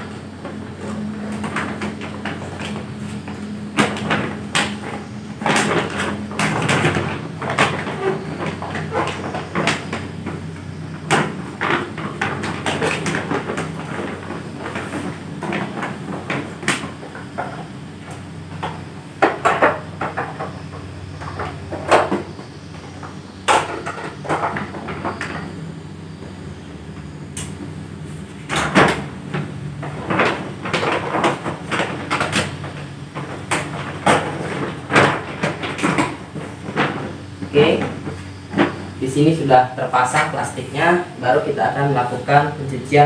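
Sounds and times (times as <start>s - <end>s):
plastic sheet rustling and crinkling: 0.0s - 23.0s, 27.6s - 42.9s.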